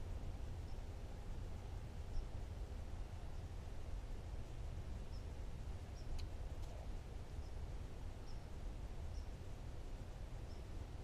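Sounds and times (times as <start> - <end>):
low outdoor rumble: 0.0 - 11.0
small bird chirping: 0.6 - 1.0, 2.0 - 2.4, 5.0 - 6.8, 7.4 - 8.5, 9.1 - 9.4, 10.4 - 10.8
faint clicks: 6.0 - 6.8.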